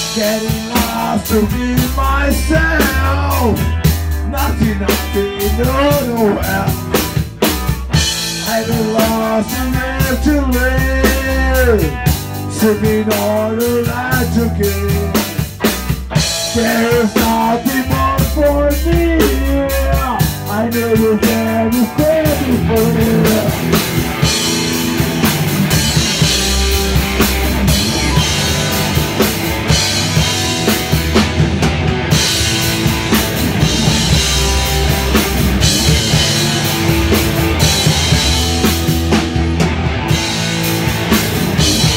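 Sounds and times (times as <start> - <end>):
person singing into microphone: 0.0 - 6.8, 8.4 - 15.2, 16.5 - 23.6
drum kit: 0.0 - 41.9
guitars: 0.0 - 41.9.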